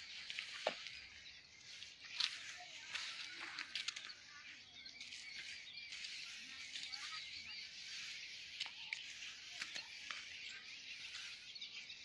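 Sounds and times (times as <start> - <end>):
footsteps in dry grass: 0.0 - 12.0
small birds chirping: 0.0 - 12.0.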